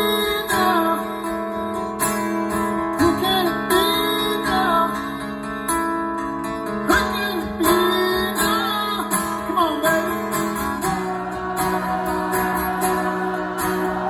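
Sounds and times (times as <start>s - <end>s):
person singing: 0.0s - 1.4s, 3.0s - 5.2s, 6.8s - 14.0s
acoustic guitar strumming: 0.0s - 14.0s.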